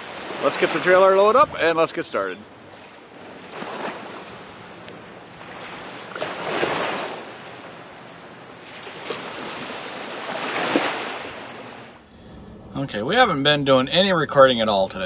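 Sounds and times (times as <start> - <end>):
small waves washing on sand: 0.0 - 1.5, 2.7 - 4.6, 5.2 - 8.0, 8.6 - 12.0.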